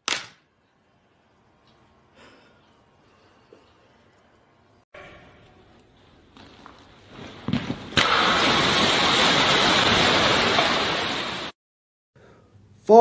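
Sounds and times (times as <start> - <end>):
crackles: 5.4 - 11.6
explosion blast: 7.3 - 11.6.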